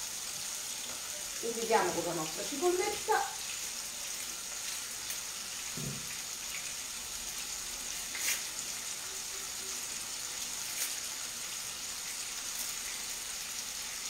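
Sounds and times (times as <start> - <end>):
sausage sizzling in a frying pan: 0.0 - 14.0.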